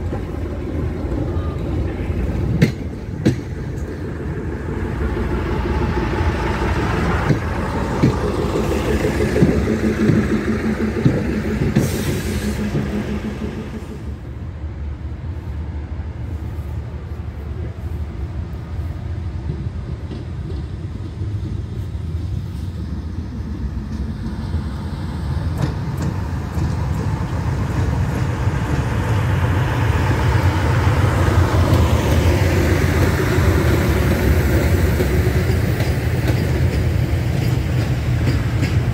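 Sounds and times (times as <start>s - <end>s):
locomotive diesel engine: 0.0s - 38.9s
train rumble: 0.0s - 38.9s
train wheel clicks: 5.8s - 14.0s, 19.3s - 21.8s, 23.8s - 29.6s, 30.3s - 38.9s.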